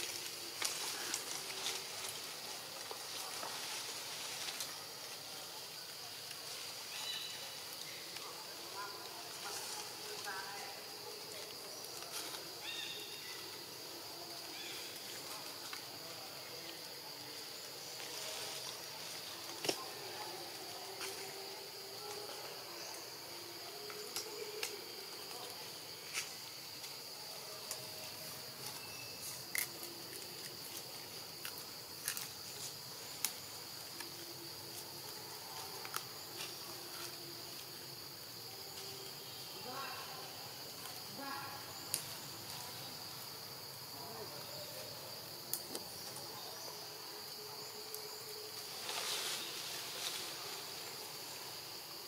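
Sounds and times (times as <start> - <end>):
insects droning: 0.0 - 52.0.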